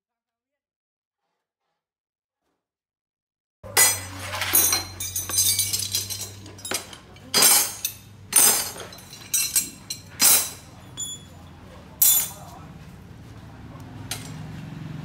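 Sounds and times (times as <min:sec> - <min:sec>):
metal pieces clinking: 0:03.8 - 0:11.3.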